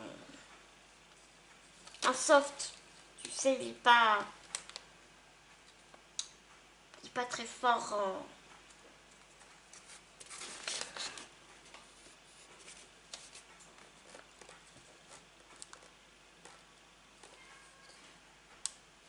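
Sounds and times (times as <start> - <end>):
plastic packaging rustling: 9.7 - 11.4.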